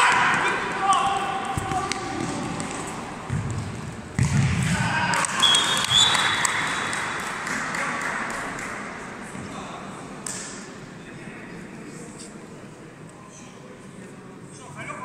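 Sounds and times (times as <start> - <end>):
players and spectators shouting: 0.0 - 2.5
referee's whistle: 5.4 - 6.9.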